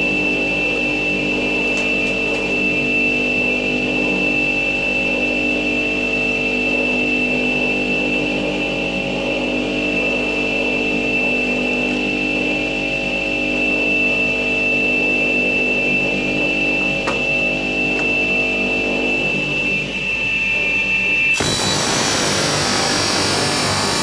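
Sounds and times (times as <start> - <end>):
tile saw whining: 21.3 - 24.0.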